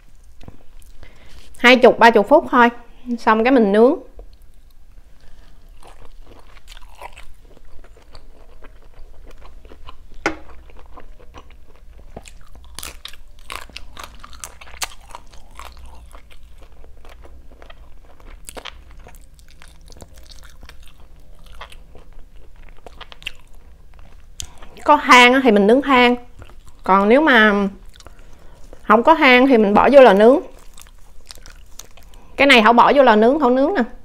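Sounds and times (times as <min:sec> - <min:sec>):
chewing with crisp crunches: 0:04.2 - 0:25.1, 0:26.2 - 0:29.0, 0:29.9 - 0:32.4.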